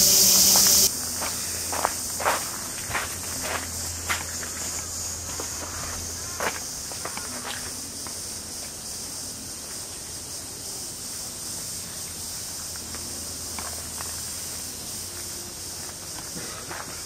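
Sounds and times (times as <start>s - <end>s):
faint footsteps on path: 0.0s - 8.9s, 12.4s - 17.0s
cicadas chorus: 0.0s - 17.0s.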